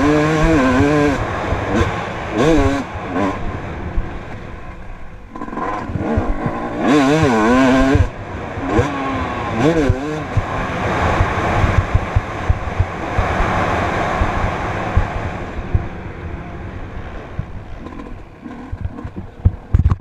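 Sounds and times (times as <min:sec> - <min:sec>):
wind rushing over microphone: 0:00.0 - 0:20.0
low thumps from bumpy ground: 0:09.8 - 0:16.0, 0:17.3 - 0:20.0.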